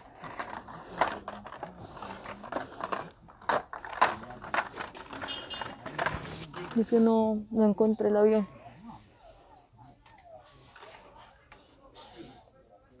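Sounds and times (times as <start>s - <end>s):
toy packages being handled: 0.0s - 7.4s.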